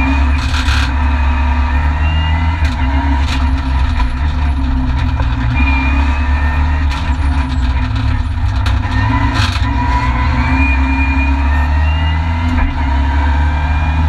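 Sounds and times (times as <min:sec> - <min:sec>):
rally car engine from cabin: 0:00.0 - 0:14.0
sharp clicks and knocks: 0:02.6 - 0:10.2.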